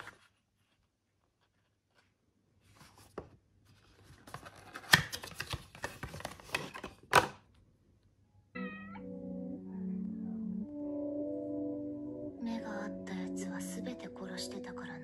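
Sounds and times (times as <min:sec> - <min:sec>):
soft music with sustained notes: 0:08.5 - 0:15.0.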